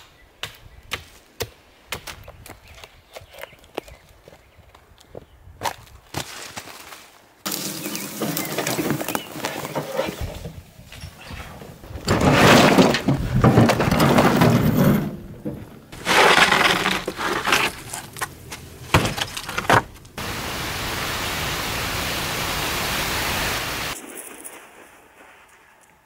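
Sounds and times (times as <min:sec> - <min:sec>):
dry bark clattering and crackling: 0:07.5 - 0:10.5, 0:11.9 - 0:20.2
steady hiss: 0:20.2 - 0:24.0.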